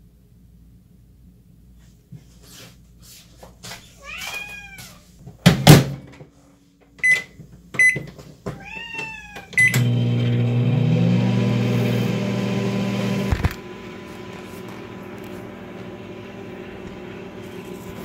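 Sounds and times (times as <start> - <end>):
cat meowing: 4.0 - 5.1, 8.5 - 9.7
short keypad beeps: 7.0 - 8.0, 9.6 - 9.8
microwave oven humming: 9.5 - 18.0.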